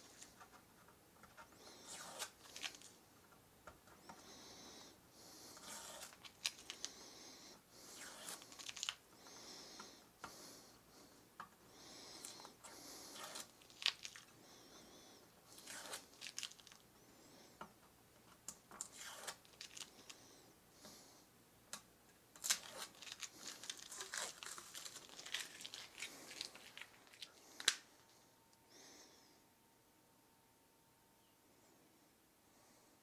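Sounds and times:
masking tape ripping and crinkling: 0:01.8 - 0:03.0, 0:05.6 - 0:07.0, 0:07.9 - 0:09.0, 0:13.0 - 0:14.3, 0:15.5 - 0:16.8, 0:18.8 - 0:20.1, 0:22.4 - 0:27.8.

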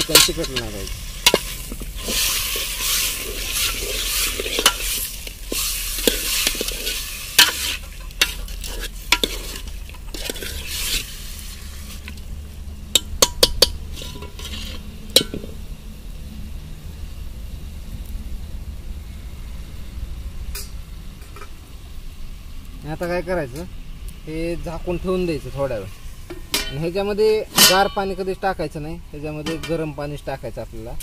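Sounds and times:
steel ladle scraping pot: 0:00.0 - 0:12.2, 0:12.9 - 0:15.6, 0:26.3 - 0:28.2
chicken sizzling in oil: 0:00.0 - 0:16.2.

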